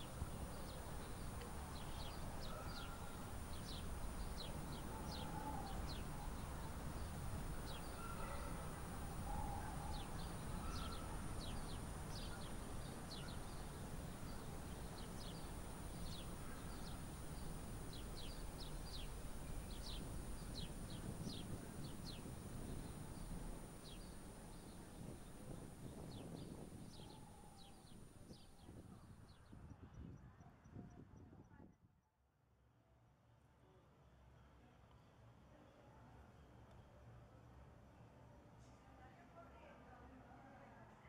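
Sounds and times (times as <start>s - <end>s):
lower bird calls: 0.0s - 28.6s
low background rumble: 0.0s - 28.8s
small birds chirping: 0.0s - 29.5s.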